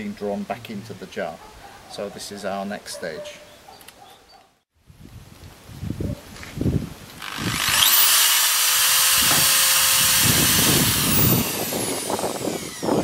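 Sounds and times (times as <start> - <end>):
electric drill boring through metal: 7.2 - 13.0.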